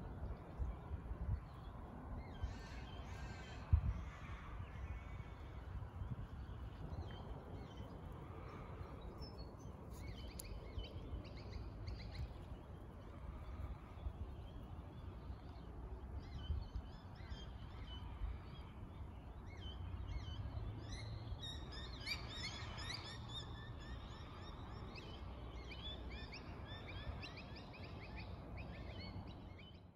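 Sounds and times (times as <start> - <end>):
low wind rumble: 0.0 - 29.9
small birds chirping: 5.4 - 24.1.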